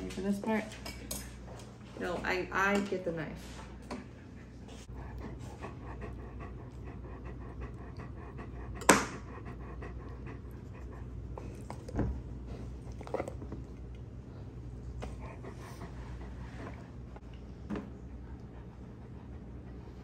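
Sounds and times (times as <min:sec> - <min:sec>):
dog panting: 0:04.2 - 0:13.8, 0:14.4 - 0:17.2.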